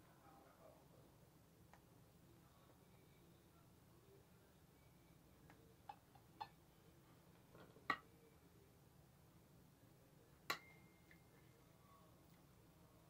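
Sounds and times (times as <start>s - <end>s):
spoon clinking against dish: 10.5s - 11.2s.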